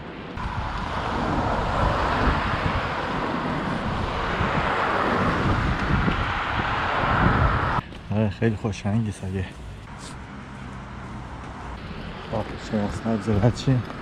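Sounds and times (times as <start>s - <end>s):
road traffic rush: 0.0s - 14.0s
wind buffeting microphone: 0.4s - 8.1s.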